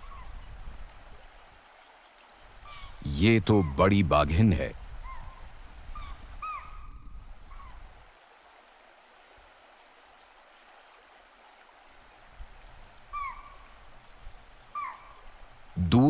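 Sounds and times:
river water running over stones: 0.0 - 4.8, 7.3 - 16.0
bird chirping: 12.1 - 16.0.

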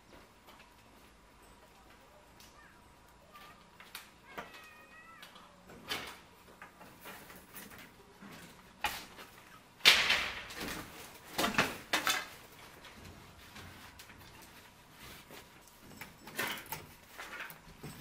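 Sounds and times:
bamboo fence scraping clatter: 6.8 - 18.0.

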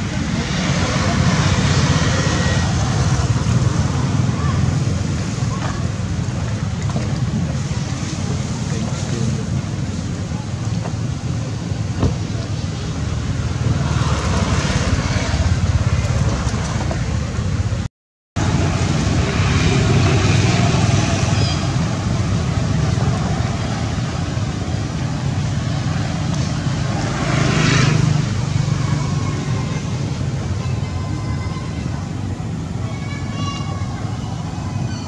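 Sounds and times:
outdoor rumble and hiss: 0.0 - 35.0.

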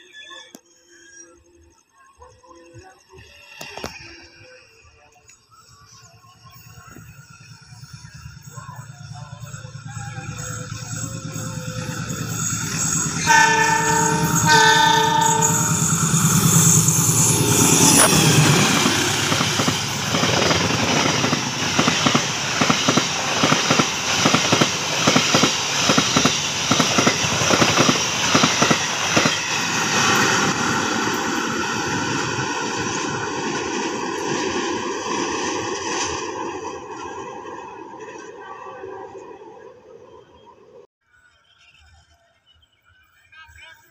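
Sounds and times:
locomotive engine passing: 6.3 - 40.8
locomotive horn blasts: 12.7 - 19.4
train wheels clickety-clack: 16.6 - 31.4.

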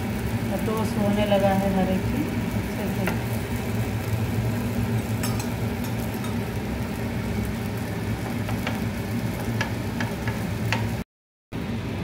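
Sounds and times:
cheese sizzling in oil: 0.0 - 11.0
steel spoon clicking against pan: 5.2 - 6.4, 9.6 - 10.9.

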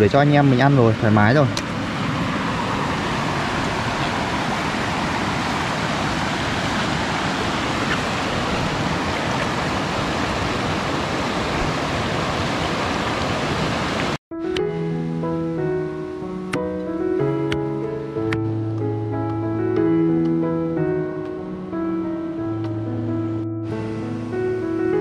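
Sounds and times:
stream water rushing: 0.0 - 14.2.

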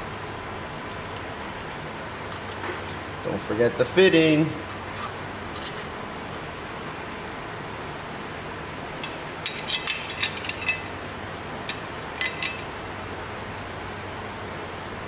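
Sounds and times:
steady background hiss: 0.0 - 15.0
metal tool clinking: 9.0 - 11.0, 11.7 - 12.8.

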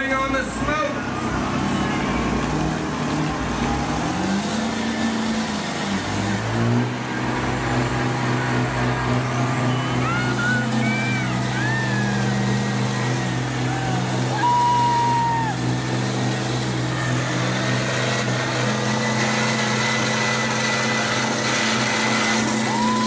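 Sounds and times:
tires spinning on concrete: 0.0 - 23.0
truck engines revving: 0.0 - 23.0
gliding squeals: 7.9 - 15.6.

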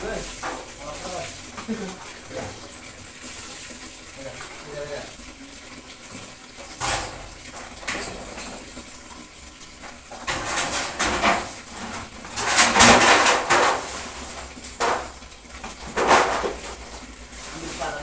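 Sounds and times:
pots clattering: 6.2 - 8.9, 9.8 - 18.0.

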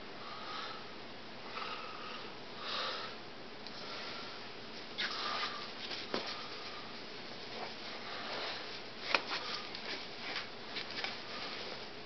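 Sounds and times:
steady low hiss: 0.0 - 12.0
faint rustling: 3.8 - 12.0.

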